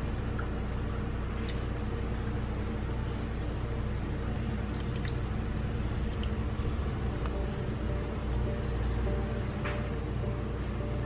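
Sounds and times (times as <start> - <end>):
steady low hum: 0.0 - 11.0
liquid pouring: 1.2 - 7.2.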